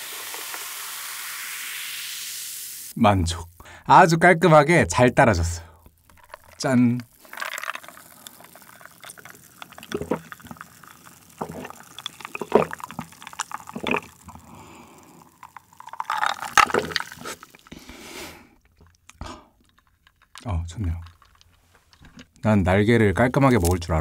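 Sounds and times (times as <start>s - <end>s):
gulping swallows: 6.5s - 19.8s.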